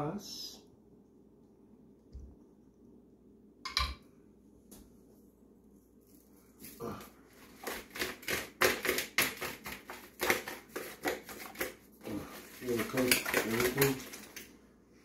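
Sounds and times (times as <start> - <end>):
chicken wings slapping in container: 12.6 - 14.4.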